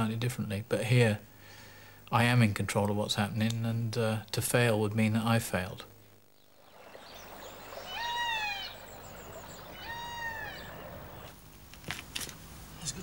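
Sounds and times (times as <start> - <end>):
faint outdoor hiss: 0.0 - 13.0
bird calling: 6.4 - 11.4.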